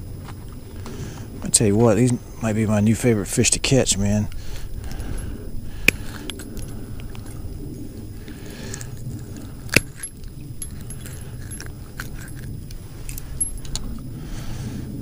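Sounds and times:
steady low rumble: 0:00.0 - 0:15.0
hooks jangling against pliers: 0:09.7 - 0:14.0.

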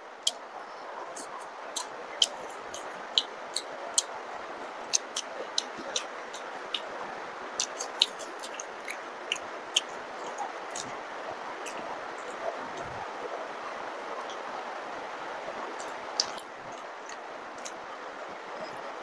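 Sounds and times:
heavy rain hiss: 0:00.0 - 0:19.0
wet mouth clicks and smacks: 0:04.9 - 0:06.9, 0:07.6 - 0:10.9, 0:15.8 - 0:16.5.

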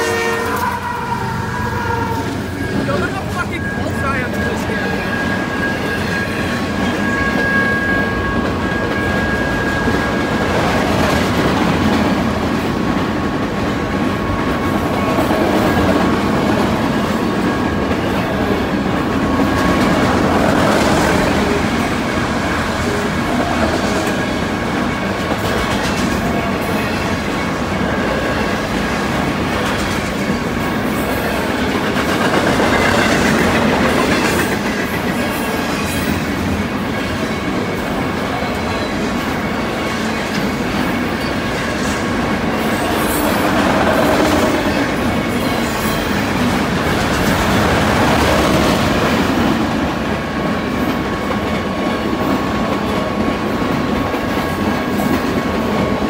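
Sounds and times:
train wheels rumbling on rails: 0:00.0 - 0:56.0
high wheel squeal: 0:00.2 - 0:10.9.

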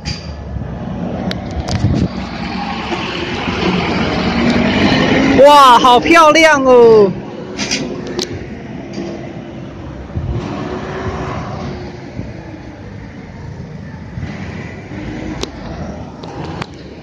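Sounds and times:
low rumble: 0:07.1 - 0:13.3.

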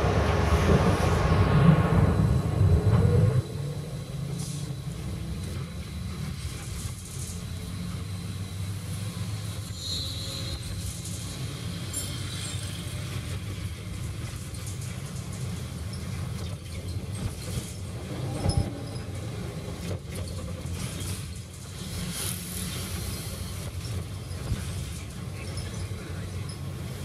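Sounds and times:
vehicle cabin rumble: 0:00.0 - 0:05.6.

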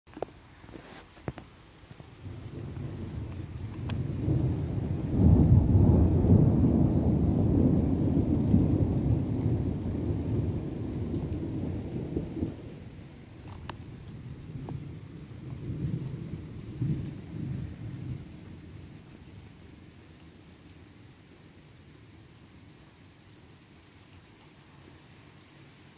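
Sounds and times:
steady rain: 0:00.1 - 0:25.9
thunder rumbling: 0:02.0 - 0:20.6.

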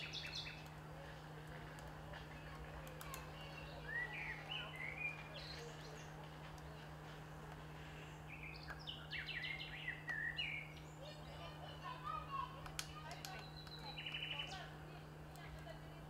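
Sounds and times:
birds singing: 0:00.0 - 0:15.5
steady low hum: 0:00.0 - 0:16.0.

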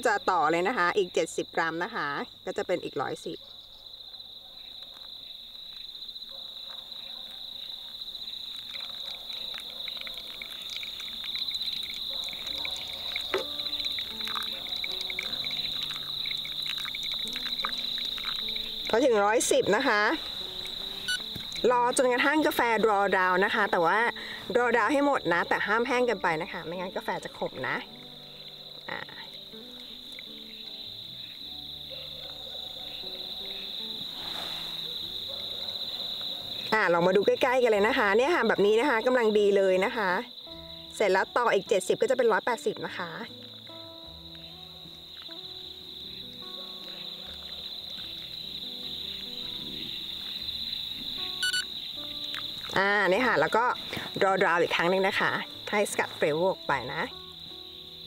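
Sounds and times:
insects trilling: 0:00.0 - 0:58.0
soft background music: 0:00.0 - 0:58.0
water trickling onto coffee grounds: 0:07.9 - 0:21.7.

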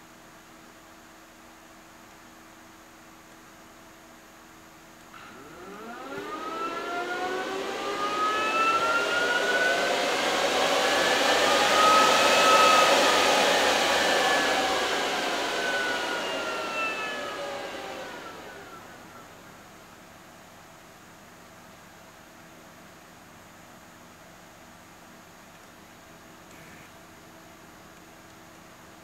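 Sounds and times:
cooling fans whining: 0:04.2 - 0:22.5.

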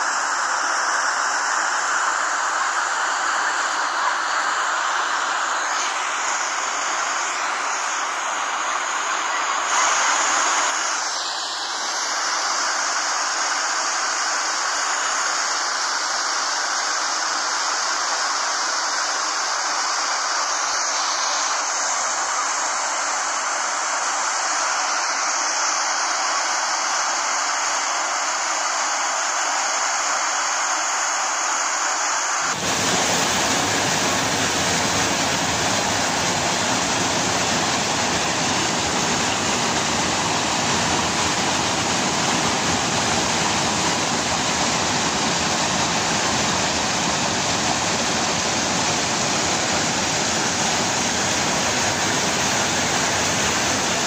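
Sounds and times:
waterfall rushing: 0:01.4 - 0:15.5, 0:32.4 - 0:54.0
river water rushing: 0:32.4 - 0:54.0.

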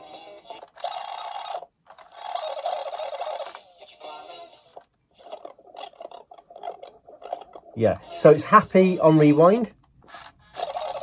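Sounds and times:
sped-up tape chatter: 0:00.0 - 0:08.6.

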